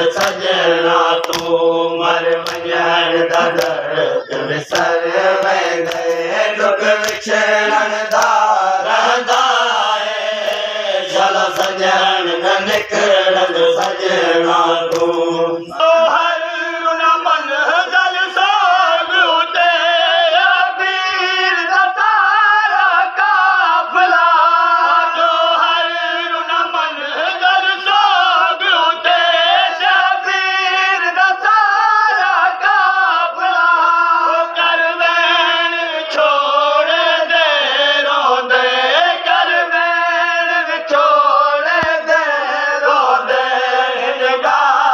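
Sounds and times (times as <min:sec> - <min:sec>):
men chanting together: 0:00.0 - 0:44.9
sharp slaps: 0:00.1 - 0:00.6, 0:01.2 - 0:03.9, 0:04.7 - 0:06.3, 0:06.9 - 0:08.5, 0:09.2 - 0:09.7, 0:10.4 - 0:10.8, 0:11.4 - 0:12.0, 0:12.6 - 0:13.1, 0:13.7 - 0:14.1, 0:14.8 - 0:15.3, 0:41.8 - 0:42.1.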